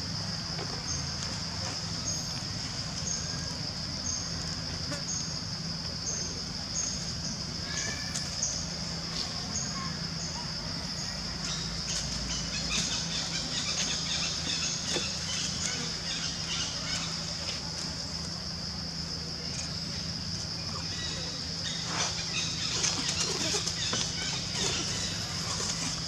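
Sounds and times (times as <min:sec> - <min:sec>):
monkeys rustling in dry leaves: 0:21.7 - 0:26.0.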